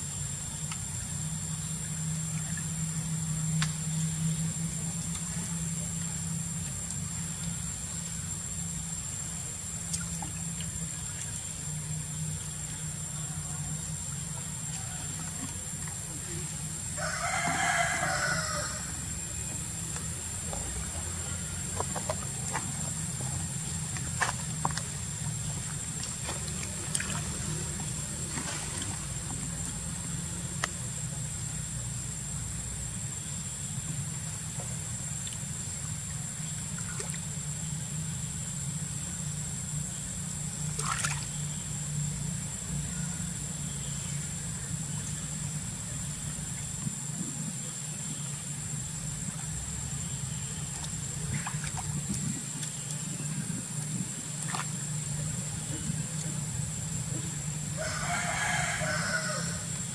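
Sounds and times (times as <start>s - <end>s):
steady high whine: 0.0s - 59.9s
steady low hum: 0.0s - 59.9s
monkeys splashing in water: 20.0s - 30.5s, 40.6s - 41.4s, 49.2s - 59.6s.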